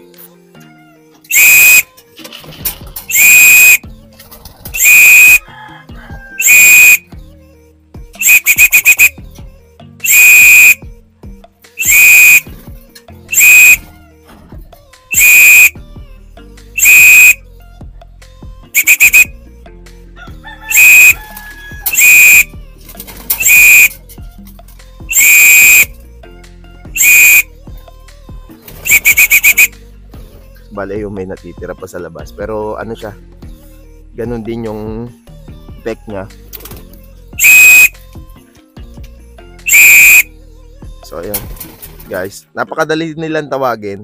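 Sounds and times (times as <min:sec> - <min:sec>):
shrill whistle blasts: 0:01.3 - 0:01.9, 0:03.1 - 0:03.8, 0:04.8 - 0:05.4, 0:06.4 - 0:07.1, 0:08.2 - 0:09.2, 0:10.0 - 0:10.8, 0:11.8 - 0:12.5, 0:13.3 - 0:13.8, 0:15.1 - 0:15.8, 0:16.8 - 0:17.4, 0:18.8 - 0:19.3, 0:20.7 - 0:21.2, 0:21.9 - 0:22.5, 0:23.4 - 0:24.0, 0:25.1 - 0:25.9, 0:27.0 - 0:27.5, 0:28.8 - 0:29.7, 0:37.4 - 0:37.9, 0:39.7 - 0:40.3.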